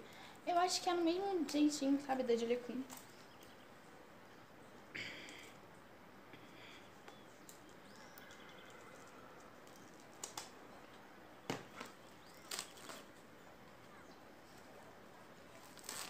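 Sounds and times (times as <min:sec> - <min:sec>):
scissors snipping wrapping: 0:08.8 - 0:10.5, 0:11.8 - 0:13.1, 0:15.5 - 0:16.0.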